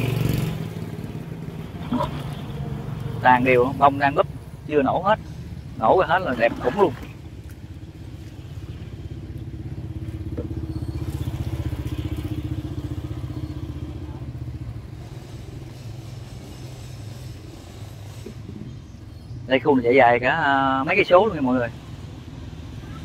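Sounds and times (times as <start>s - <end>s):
small motorbike engine passing: 0.0s - 2.7s, 8.1s - 16.2s.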